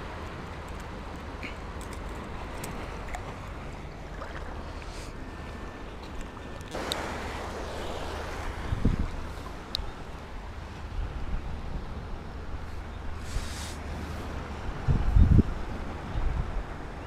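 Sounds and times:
water sloshing: 0:00.1 - 0:10.9
wind on microphone: 0:06.7 - 0:17.0.

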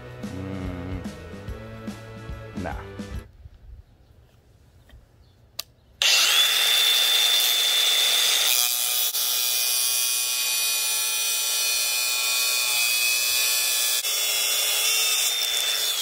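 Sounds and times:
angle grinder whining: 0:06.0 - 0:16.0.

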